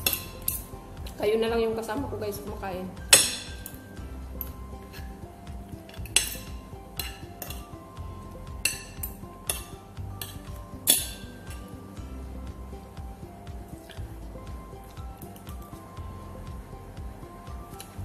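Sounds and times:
cutlery clinking on a plate: 5.9s - 7.7s.

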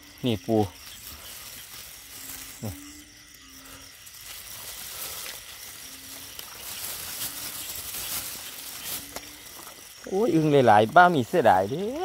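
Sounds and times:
frogs calling low notes: 0.0s - 12.0s
steady hiss: 0.0s - 12.0s.

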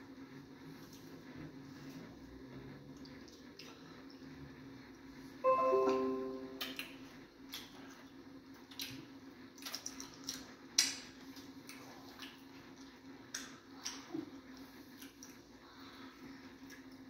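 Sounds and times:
faint steady hum: 2.9s - 8.0s
wet chewing and squelching: 7.5s - 15.8s.

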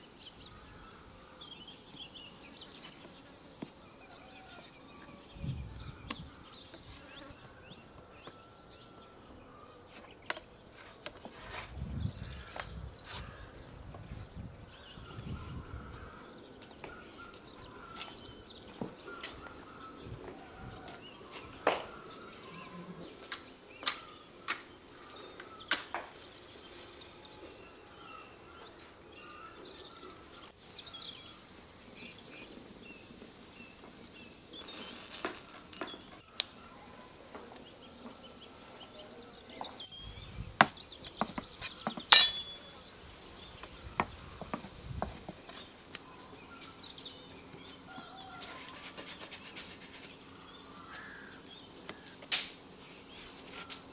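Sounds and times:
small birds chirping: 0.0s - 53.9s
sharp ringing clink: 42.1s - 42.7s.

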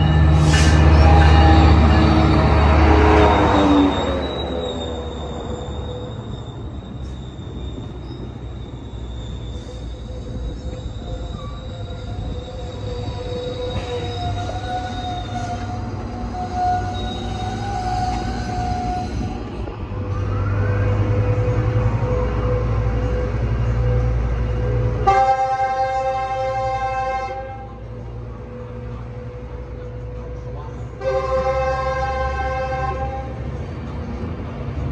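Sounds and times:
high wheel squeal: 0.0s - 34.2s
train wheels rumbling on rail: 0.0s - 34.9s
train horn chord: 24.8s - 28.0s, 31.0s - 33.4s.

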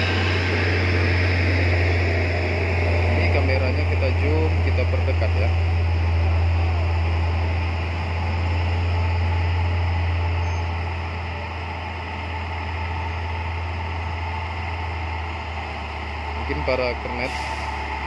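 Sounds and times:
road hiss: 0.0s - 18.0s
vehicle engines idling: 0.0s - 18.0s.

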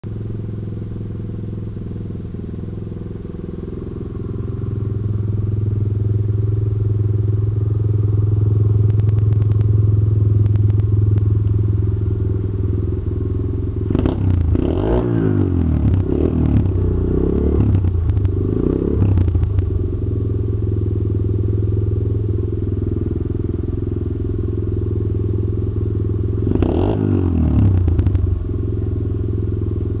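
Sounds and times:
motorcycle engine idling: 0.0s - 30.0s
engine revving: 13.8s - 20.4s, 26.3s - 28.9s.

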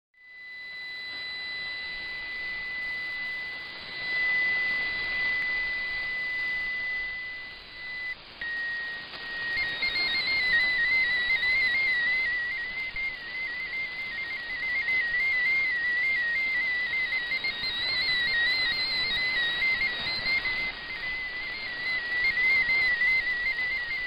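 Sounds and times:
steady radio tuning tone: 0.2s - 24.0s
warbling data tones: 0.2s - 24.0s
radio static hiss: 0.4s - 24.0s.

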